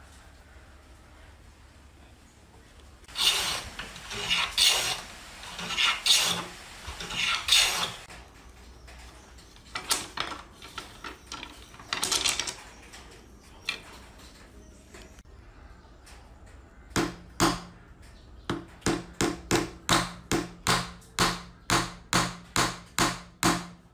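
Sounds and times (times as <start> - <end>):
hand plane strokes on wood: 3.1 - 8.1.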